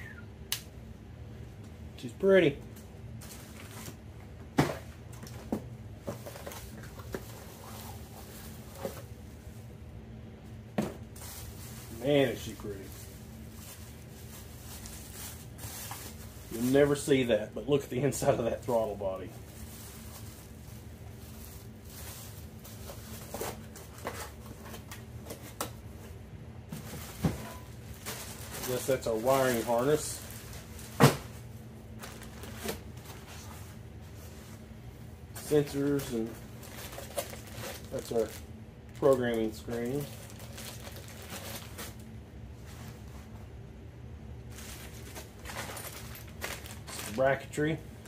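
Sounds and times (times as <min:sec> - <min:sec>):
steady low hum: 0:00.0 - 0:48.0
plastic wrap crinkling: 0:06.2 - 0:09.1, 0:11.1 - 0:17.3, 0:18.2 - 0:25.1, 0:26.9 - 0:31.2, 0:31.9 - 0:33.7, 0:35.4 - 0:42.1, 0:44.4 - 0:47.6.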